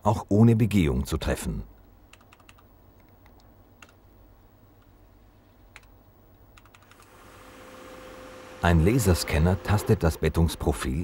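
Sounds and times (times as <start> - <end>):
faint clicks: 1.8 - 4.0, 5.7 - 7.1.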